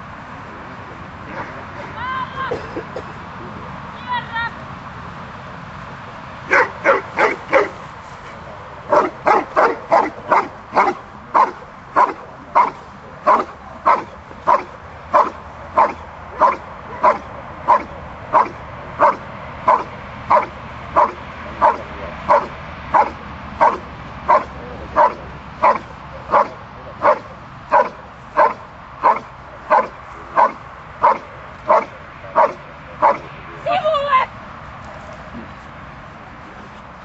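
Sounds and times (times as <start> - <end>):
dog barking: 6.5 - 7.8, 8.8 - 33.3.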